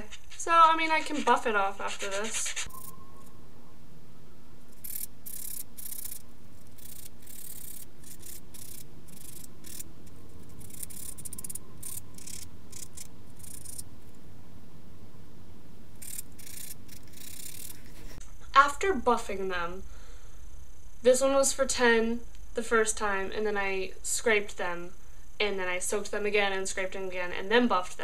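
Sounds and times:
nail buffer scratching fingernails: 0.0s - 2.9s, 4.8s - 13.9s, 16.0s - 18.2s.

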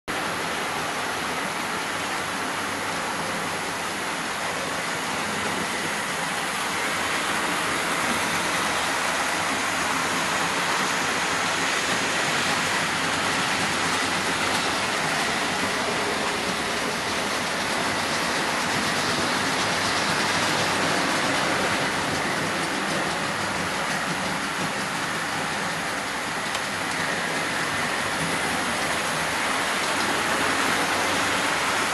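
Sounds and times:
model trains running on track: 0.1s - 31.9s.

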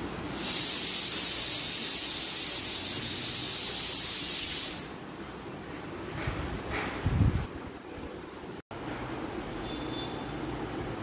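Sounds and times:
loud high-pitched hiss: 0.0s - 5.0s.

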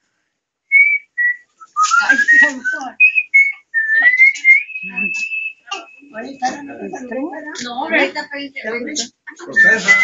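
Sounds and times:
person whistling a melody: 0.7s - 6.8s, 9.5s - 10.0s.

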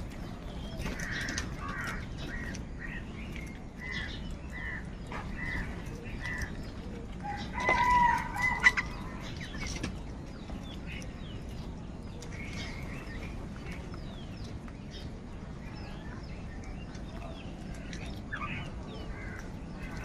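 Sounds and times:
crows calling: 0.7s - 9.7s, 18.3s - 20.0s.

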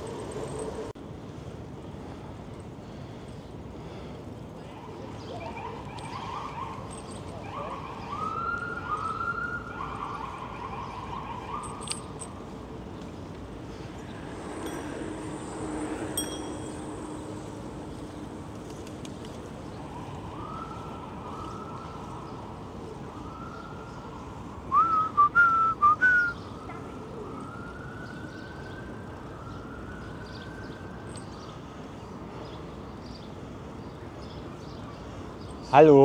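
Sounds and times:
outdoor noise: 0.0s - 36.0s
distant siren wailing: 4.7s - 12.2s, 19.5s - 32.2s
short whistle-like notes: 24.7s - 26.4s.

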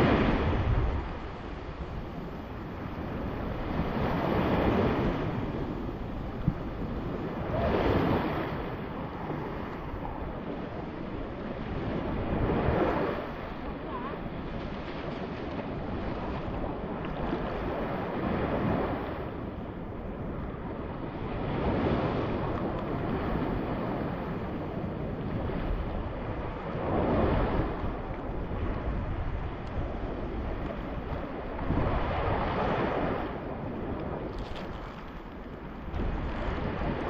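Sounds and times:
small waves sloshing: 0.0s - 19.4s, 30.2s - 37.0s
wind buffeting microphone: 0.0s - 37.0s.

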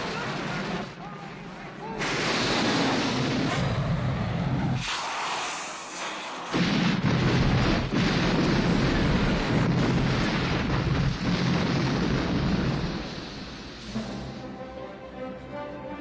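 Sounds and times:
large explosion rumbling: 2.0s - 4.9s, 6.5s - 14.3s.

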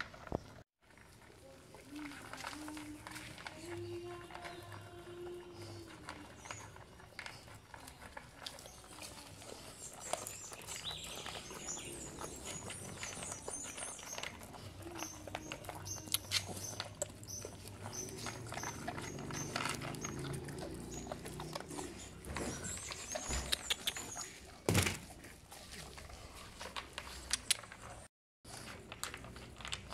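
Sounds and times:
puppies crunching dry kibble: 0.0s - 29.9s
puppies licking: 0.9s - 29.9s
teeth clicking against metal bowl: 13.0s - 21.9s, 23.4s - 24.2s.

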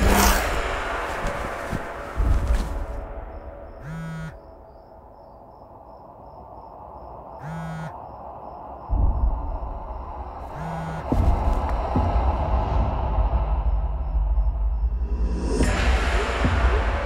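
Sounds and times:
crickets chirping: 0.0s - 17.0s
phone vibrating buzz: 3.8s - 4.4s, 7.4s - 8.0s, 10.5s - 11.2s.

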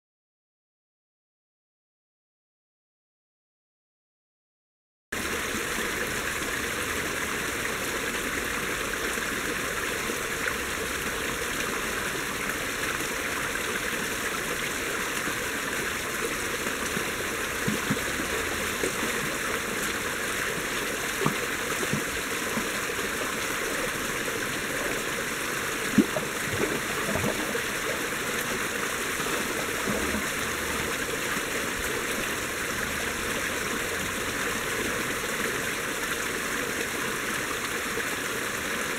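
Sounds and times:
stream water splashing over rocks: 5.2s - 38.9s
water plinks: 16.1s - 34.8s.

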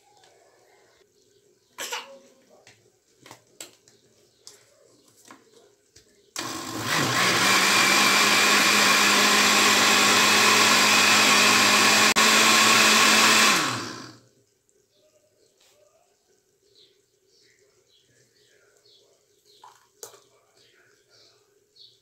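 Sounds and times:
blender whirring: 6.4s - 14.2s.

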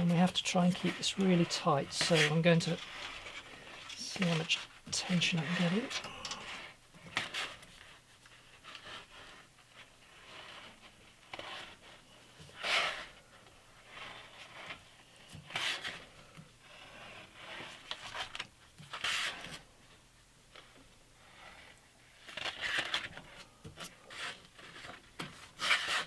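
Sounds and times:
sandpaper rustling and rubbing: 0.0s - 13.2s, 24.0s - 26.0s.

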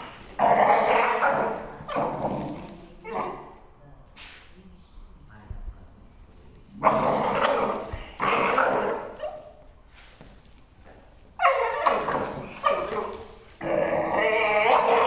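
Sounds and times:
dog barking: 0.0s - 2.4s, 6.8s - 9.6s, 11.4s - 13.4s, 14.5s - 15.0s.

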